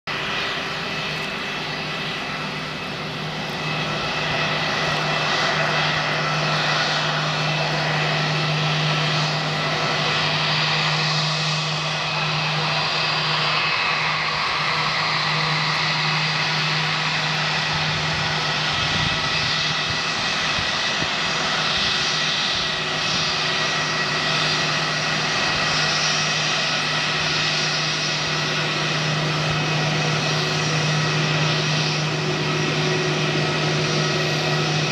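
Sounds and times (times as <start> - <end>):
jet engine whine: 0.0 - 34.9.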